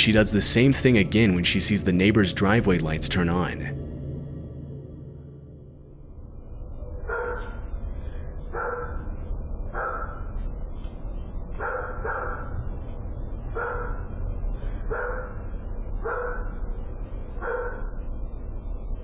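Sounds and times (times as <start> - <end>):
steady low hum: 0.0 - 19.0
dog barking: 7.0 - 7.6, 8.5 - 9.1, 9.7 - 10.3, 11.6 - 12.6, 13.5 - 14.2, 14.9 - 15.4, 16.0 - 16.6, 17.4 - 18.0.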